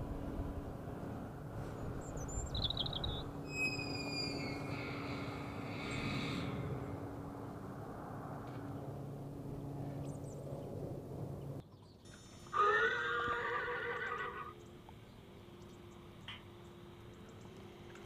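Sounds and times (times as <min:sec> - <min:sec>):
steady low hum: 0:00.0 - 0:12.6, 0:14.0 - 0:18.0
horse neighing: 0:12.5 - 0:14.6.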